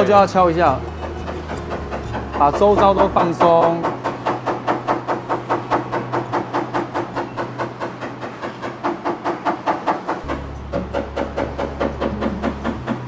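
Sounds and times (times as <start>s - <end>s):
rapid hammer tapping on metal panel: 0.0s - 13.0s.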